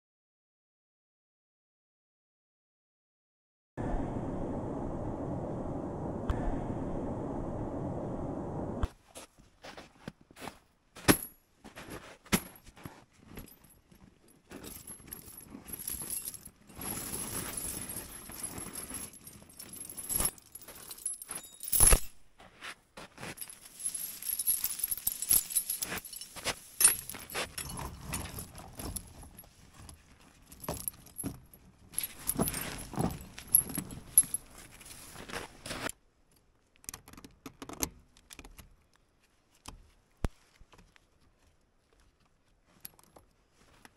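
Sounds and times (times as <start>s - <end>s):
metal jangling and clinking: 13.2s - 22.2s, 23.3s - 35.2s.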